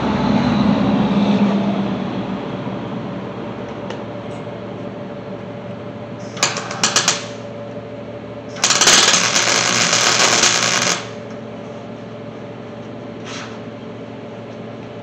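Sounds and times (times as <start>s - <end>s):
welder crackling: 6.3s - 7.4s, 8.6s - 11.3s.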